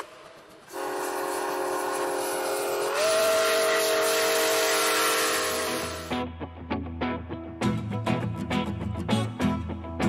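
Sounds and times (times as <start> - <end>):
steam hiss: 0.0 - 6.1
steam locomotive whistle: 0.7 - 6.2.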